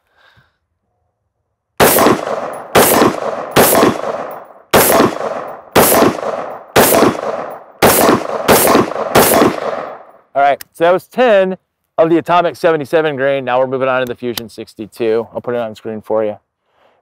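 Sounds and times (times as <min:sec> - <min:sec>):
rifle gunshots with ringing tail: 0:01.8 - 0:10.2.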